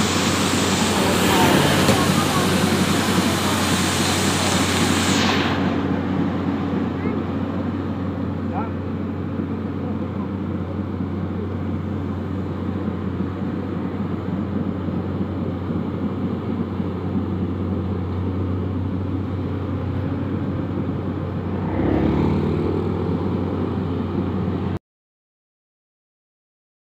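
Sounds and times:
motorcycle passing: 0:00.0 - 0:07.3, 0:21.3 - 0:24.5
diesel engine idling: 0:00.0 - 0:24.8.

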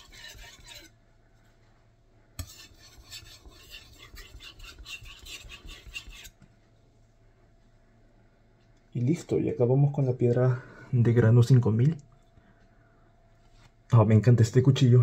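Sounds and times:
knife scraping on whetstone: 0:00.0 - 0:00.9, 0:02.4 - 0:06.4.

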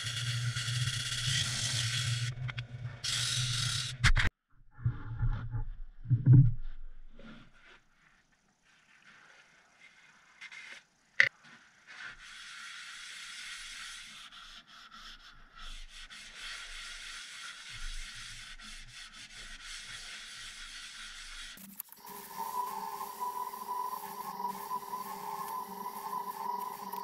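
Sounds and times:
cloth rubbing on wood: 0:22.0 - 0:27.0
wood lathe humming: 0:22.0 - 0:27.0.

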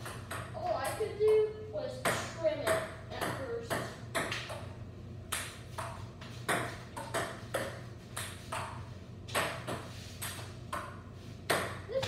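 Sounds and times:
table tennis ball hits: 0:02.0 - 0:04.7, 0:05.3 - 0:12.0.

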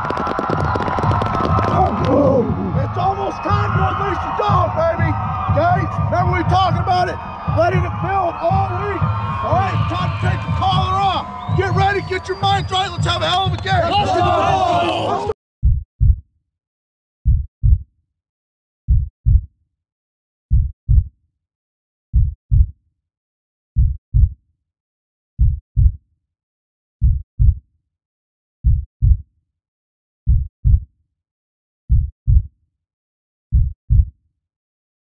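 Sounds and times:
heartbeat thumps: 0:00.0 - 0:14.4, 0:15.6 - 0:16.2, 0:17.2 - 0:17.8, 0:18.9 - 0:19.5, 0:20.5 - 0:21.1, 0:22.2 - 0:22.7, 0:23.8 - 0:24.4, 0:25.4 - 0:26.0, 0:27.0 - 0:27.6, 0:28.6 - 0:29.2, 0:30.3 - 0:30.8, 0:31.9 - 0:32.5, 0:33.5 - 0:34.1.

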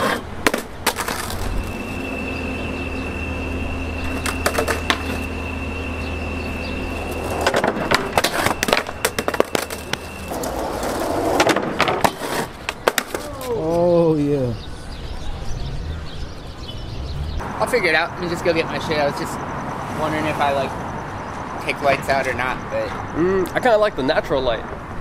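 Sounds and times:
skateboard clacking on ground: 0:00.0 - 0:01.6, 0:04.1 - 0:05.3, 0:07.2 - 0:13.8
skateboard wheels rolling on concrete: 0:00.0 - 0:19.2.

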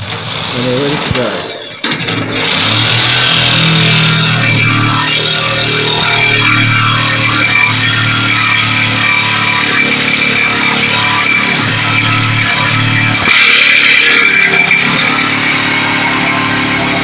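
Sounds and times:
jigsaw cutting steel: 0:00.0 - 0:17.0.

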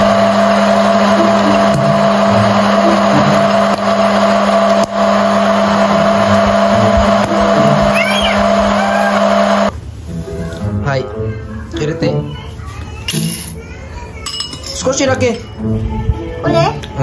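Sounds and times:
popcorn maker fan blowing: 0:00.0 - 0:10.0.

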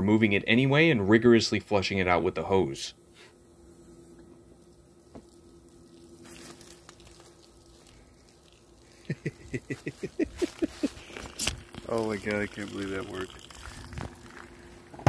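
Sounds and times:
faint steady hum: 0:00.0 - 0:15.0
liquid gurgling through hose: 0:04.8 - 0:15.0.

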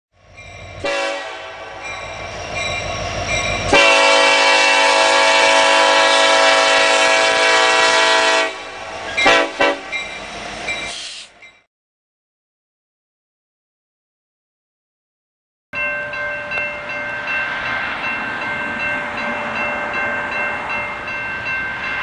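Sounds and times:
low train rumble: 0:00.1 - 0:11.7, 0:15.8 - 0:22.0
locomotive air horn: 0:00.8 - 0:01.9, 0:03.7 - 0:10.0.

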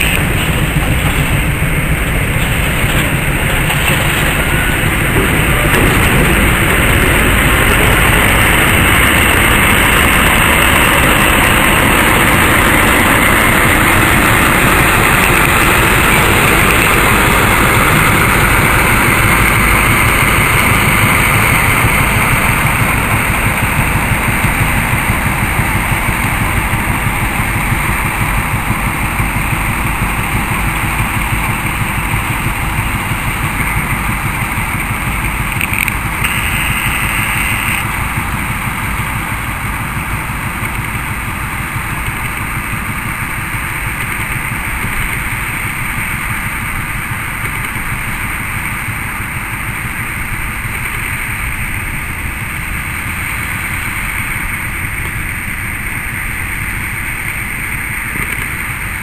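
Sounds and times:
diesel locomotive engine running: 0:00.0 - 0:59.0
brief high-pitched tone: 0:36.2 - 0:37.9.

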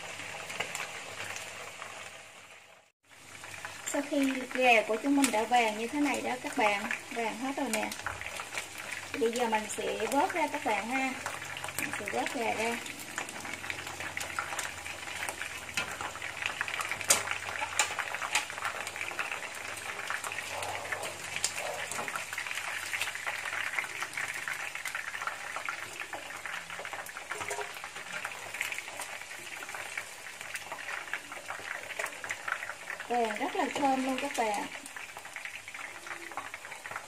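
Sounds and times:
chicken wings sizzling in oil: 0:00.0 - 0:37.0
metal turner clicking on pan: 0:13.2 - 0:20.4.

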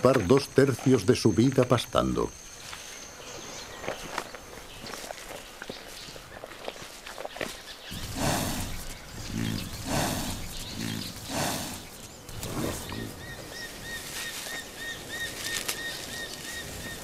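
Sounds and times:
buffalo chewing grass: 0:03.8 - 0:17.0
bird calling: 0:07.4 - 0:17.0.

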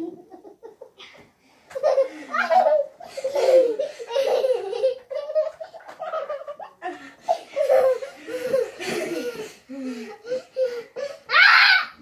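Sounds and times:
young children laughing: 0:00.0 - 0:12.0.

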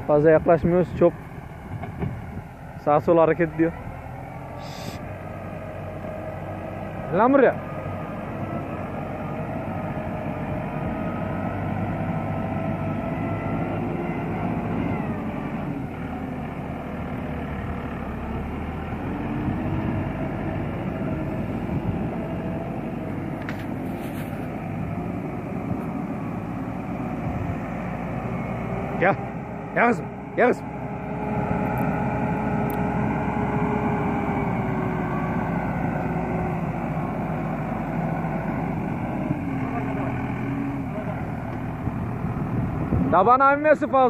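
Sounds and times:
tractor diesel engine running: 0:00.0 - 0:44.0.

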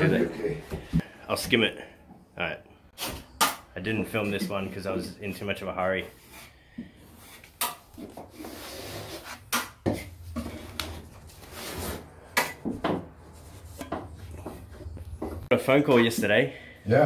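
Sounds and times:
steel knife scraping plaster: 0:06.0 - 0:09.7.

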